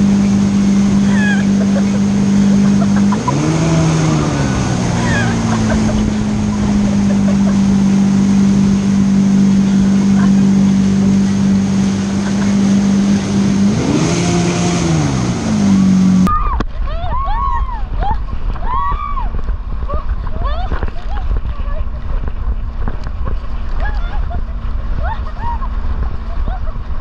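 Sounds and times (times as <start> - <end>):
jet ski engine: 0.0 - 27.0
water rushing: 0.0 - 27.0
wind on microphone: 0.0 - 27.0.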